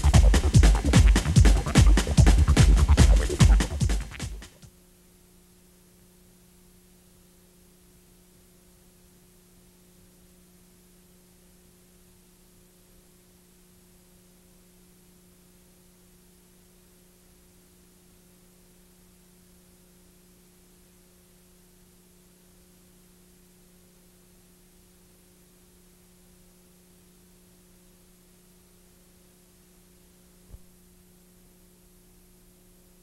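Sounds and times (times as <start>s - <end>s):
faint electrical hum: 0.0s - 33.0s
short low pop: 30.5s - 30.8s.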